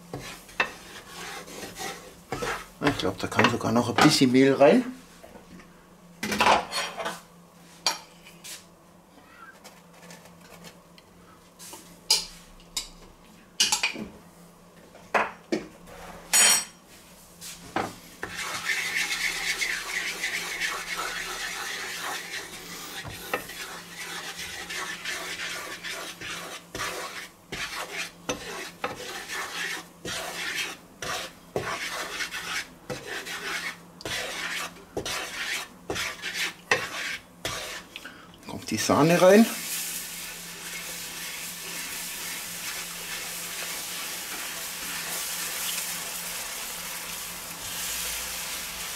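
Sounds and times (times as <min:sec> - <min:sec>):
roux sizzling: 0:00.0 - 0:02.8, 0:17.4 - 0:38.0, 0:38.7 - 0:48.9
wooden spatula scraping pan: 0:00.0 - 0:04.3, 0:17.4 - 0:37.9, 0:38.7 - 0:45.6.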